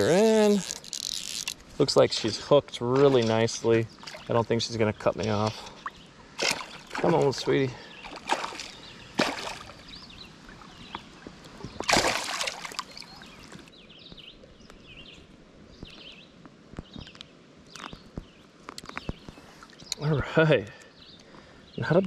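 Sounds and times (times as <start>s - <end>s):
fish splashing at water surface: 6.4s - 7.4s, 8.0s - 9.9s, 11.8s - 13.7s.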